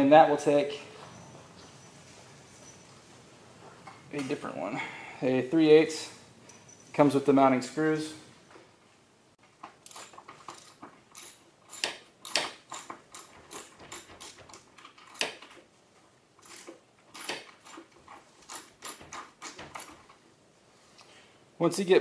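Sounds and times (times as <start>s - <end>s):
socket ratchet clicking: 9.8s - 15.6s.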